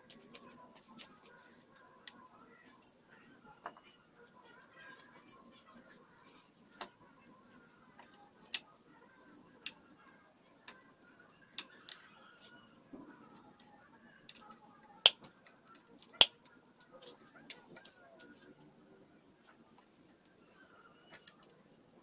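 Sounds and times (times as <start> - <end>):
faint bird chirps: 8.9 - 14.6, 17.0 - 22.0.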